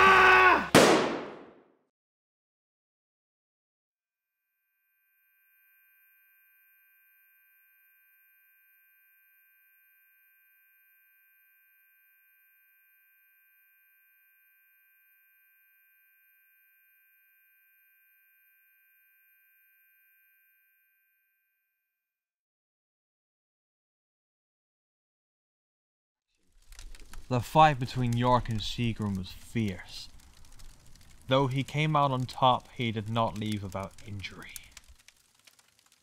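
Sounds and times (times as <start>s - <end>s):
high-pitched ringing tone: 4.2s - 21.8s.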